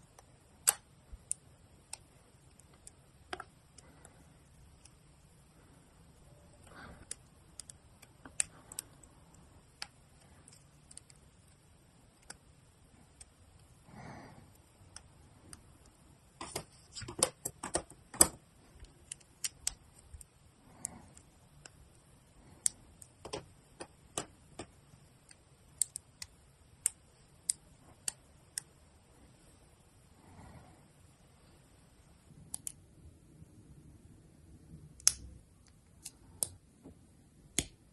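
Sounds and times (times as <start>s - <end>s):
plastic parts clicking: 16.4s - 20.3s, 22.6s - 28.7s.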